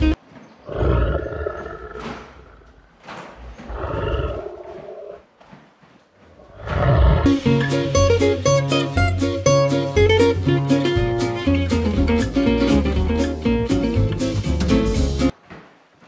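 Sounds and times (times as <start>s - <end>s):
lion roaring: 0.6s - 2.8s, 3.6s - 5.3s, 6.4s - 7.3s.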